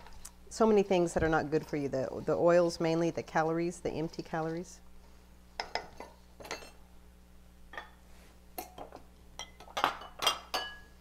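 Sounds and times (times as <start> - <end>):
metal bowls clinking: 5.6 - 6.8, 8.6 - 10.9.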